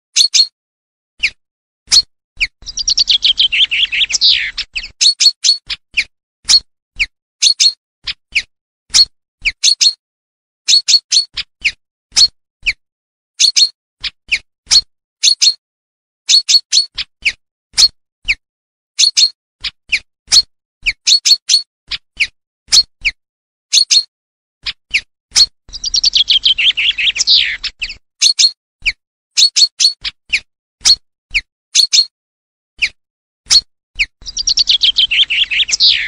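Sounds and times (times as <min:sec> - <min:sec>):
bird song falling in pitch: 0:01.9 - 0:05.6, 0:25.7 - 0:28.0, 0:34.2 - 0:36.0
bird call notes: 0:02.6 - 0:05.0, 0:25.7 - 0:28.0, 0:34.2 - 0:36.0.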